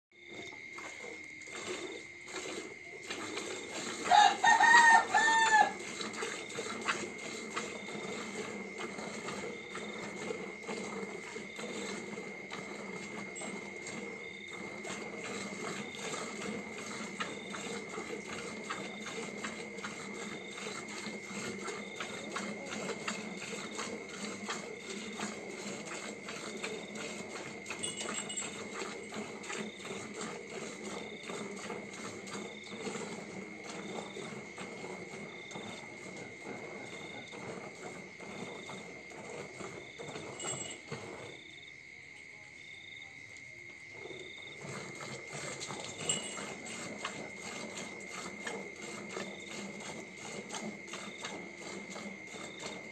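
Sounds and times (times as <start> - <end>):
milk squirting into plastic bucket: 0.2 - 41.4, 44.0 - 52.9
rooster crowing: 4.0 - 5.9.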